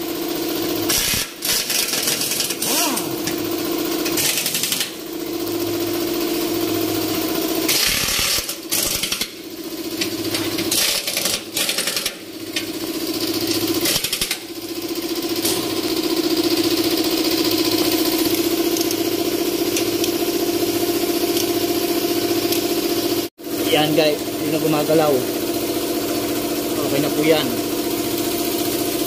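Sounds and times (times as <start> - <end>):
steady mechanical hum: 0.0 - 29.0
impact wrench bursts: 0.8 - 5.4, 7.2 - 23.3.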